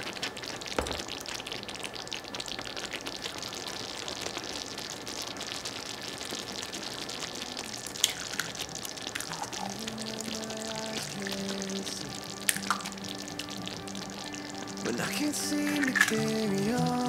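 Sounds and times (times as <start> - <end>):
sauce bubbling and sizzling: 0.0 - 17.0
egg clicking into pan: 8.0 - 9.8, 12.4 - 12.9, 15.6 - 16.5
soft background music: 9.3 - 17.0.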